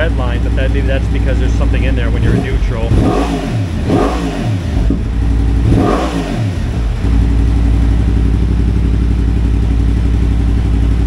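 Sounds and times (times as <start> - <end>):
motorcycle engine idling: 0.0 - 11.0
motorcycle engine revving: 0.0 - 11.0.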